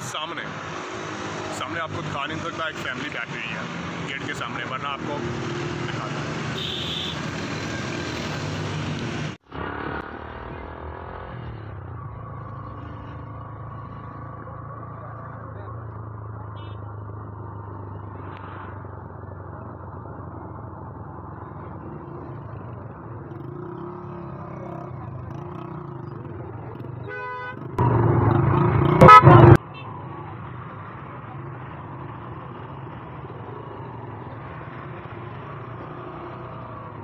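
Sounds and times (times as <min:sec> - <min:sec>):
quick horn tooting: 0:06.5 - 0:07.3, 0:27.1 - 0:27.7, 0:28.9 - 0:29.9
vehicle horn blast: 0:06.6 - 0:07.2, 0:27.1 - 0:27.6, 0:29.0 - 0:29.8.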